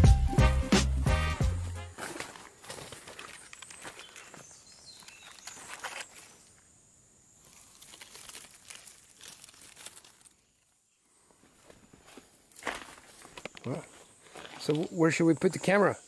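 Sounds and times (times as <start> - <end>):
rustling and crinkling: 1.9 - 6.7, 7.4 - 14.9.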